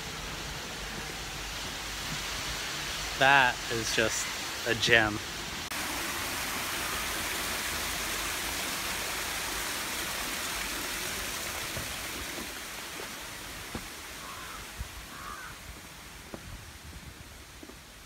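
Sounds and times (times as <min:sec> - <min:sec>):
water feature splashing: 0:00.0 - 0:18.0
bird calling: 0:14.2 - 0:15.6.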